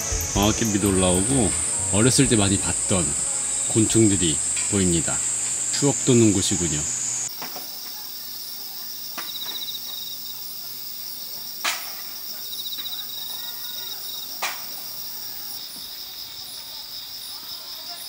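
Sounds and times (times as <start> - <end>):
pulsing trill: 0.0 - 7.0
night insects chirring: 0.0 - 18.0.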